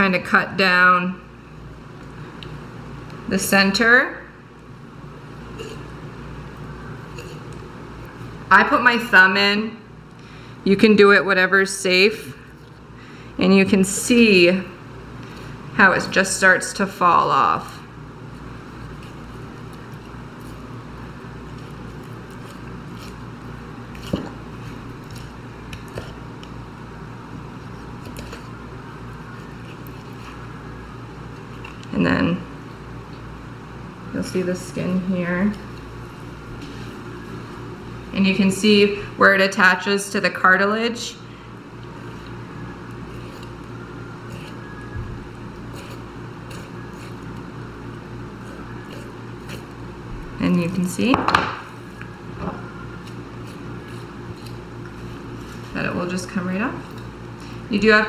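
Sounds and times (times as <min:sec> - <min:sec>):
steady low hum: 0:00.0 - 0:58.0
knife scraping against bone: 0:21.5 - 0:26.2, 0:45.5 - 0:47.5, 0:48.4 - 0:49.8, 0:53.0 - 0:55.7.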